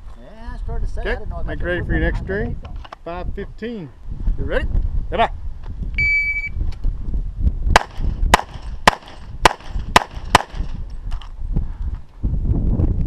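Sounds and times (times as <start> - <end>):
shot timer beep: 6.0 - 6.6
pistol shots: 7.8 - 10.7.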